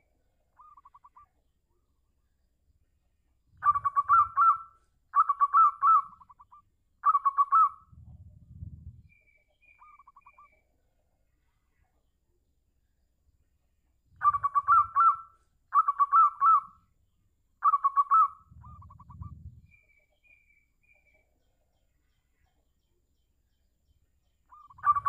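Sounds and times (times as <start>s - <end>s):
low rumble: 7.9s - 9.1s, 18.5s - 19.7s
dove cooing: 17.6s - 19.7s, 24.6s - 25.0s.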